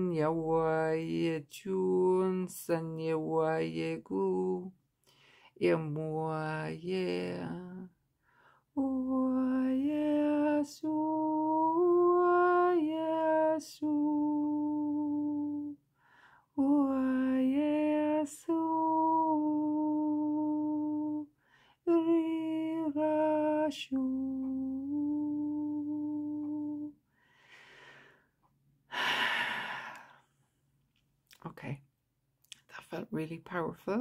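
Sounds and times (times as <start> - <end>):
woman singing wordless chant: 0.0 - 4.8, 5.5 - 8.0, 8.6 - 15.8, 16.4 - 27.0.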